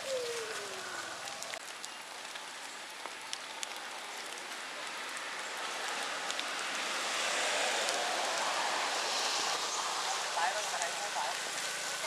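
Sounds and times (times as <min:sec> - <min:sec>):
light rain pattering on leaves: 0:00.0 - 0:12.0
small drip ticks: 0:00.2 - 0:06.9.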